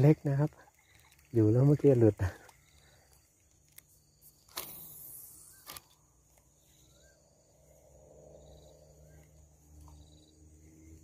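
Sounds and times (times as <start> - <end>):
faint rising chirps: 2.5 - 11.0.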